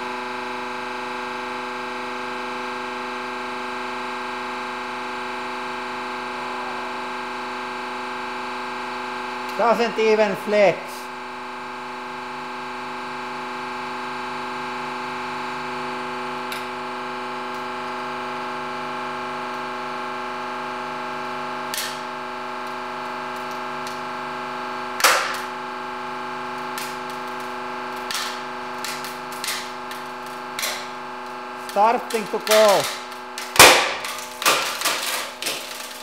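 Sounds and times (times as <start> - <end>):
hydraulic press humming: 21.6 - 36.0
wooden board cracking: 25.0 - 25.5, 28.0 - 31.0, 31.6 - 36.0.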